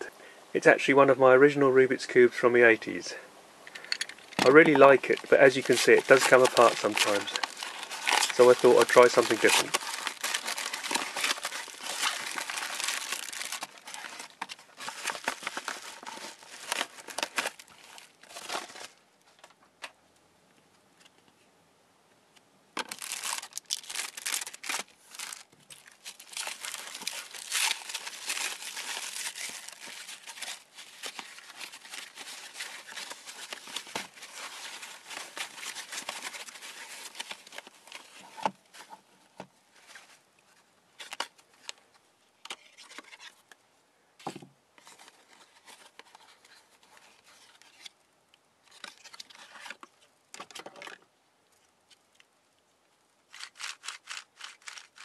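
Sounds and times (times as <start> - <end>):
plastic wrap crinkling: 4.2 - 19.0, 22.8 - 38.9, 53.3 - 55.0.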